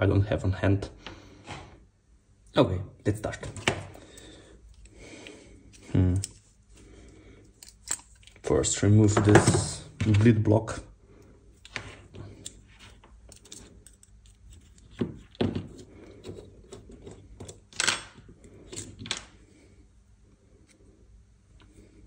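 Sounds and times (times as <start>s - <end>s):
small metal parts clinking: 7.4s - 8.5s, 12.4s - 14.9s.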